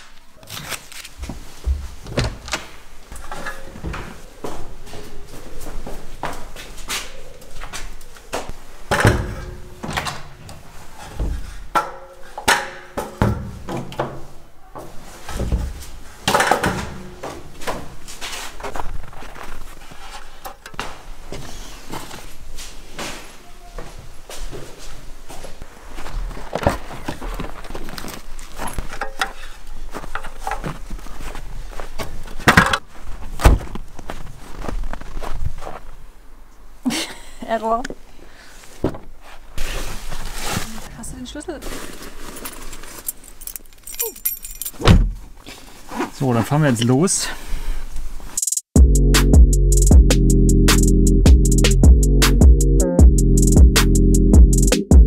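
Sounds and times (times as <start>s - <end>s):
footsteps in snow: 32.9s - 36.1s, 39.2s - 43.3s
door thuds: 44.8s - 45.2s
background music: 48.8s - 55.0s.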